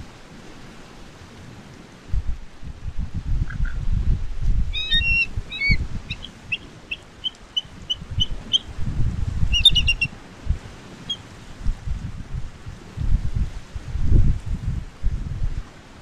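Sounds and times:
wind rumble on microphone: 0.0s - 16.0s
eagle high piping calls: 4.7s - 8.8s, 9.4s - 10.1s, 11.0s - 11.2s.

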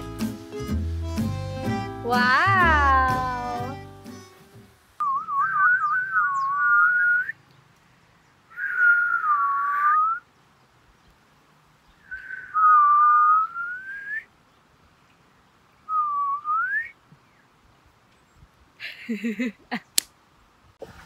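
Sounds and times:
people whistling in harmony: 5.0s - 7.4s, 8.5s - 10.2s, 12.1s - 14.3s, 15.9s - 17.0s.

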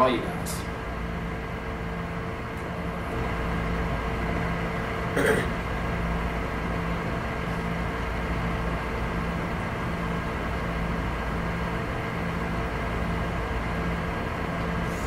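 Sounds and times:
mechanical hum with tones: 0.0s - 15.0s.

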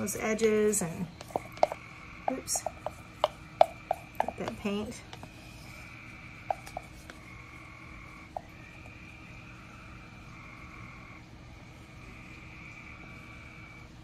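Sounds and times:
stick tapping plastic cup: 1.2s - 5.4s, 6.4s - 7.3s.

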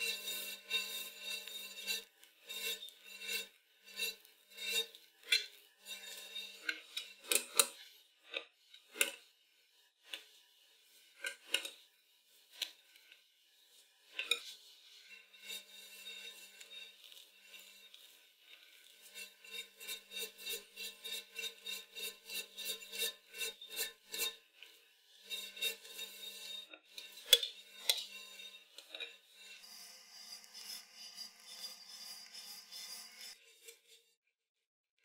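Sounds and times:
metal knife scraping cream: 0.0s - 9.3s, 11.1s - 11.9s, 14.0s - 34.2s
knife clinking on metal turntable: 25.3s - 29.6s.

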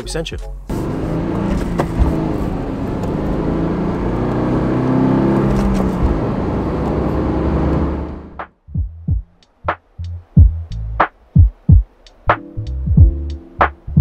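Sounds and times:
car engine shifting gears: 0.7s - 8.5s.

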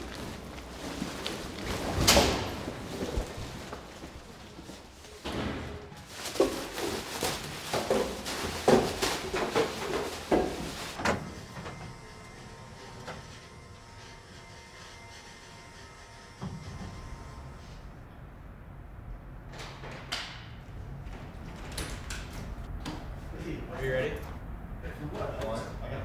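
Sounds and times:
door slamming shut: 2.0s - 2.7s, 5.2s - 5.9s.

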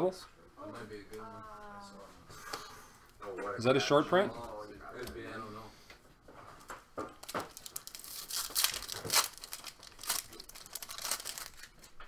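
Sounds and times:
card pack wrapper tearing: 7.2s - 11.9s.

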